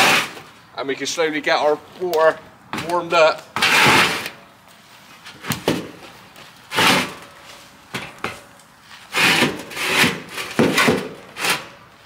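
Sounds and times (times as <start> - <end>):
wood scraping against metal: 3.6 - 11.8.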